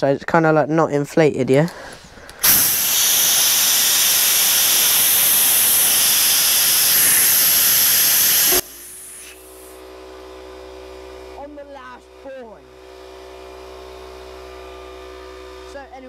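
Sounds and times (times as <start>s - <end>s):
air compressor humming: 1.8s - 11.4s
compressed air hissing from nozzle: 2.2s - 9.8s.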